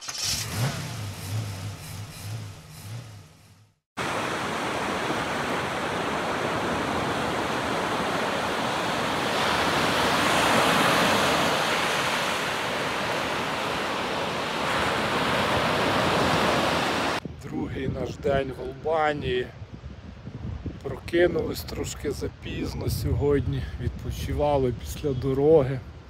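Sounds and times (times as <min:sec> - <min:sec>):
sea surf breaking on shore: 0:04.0 - 0:17.2.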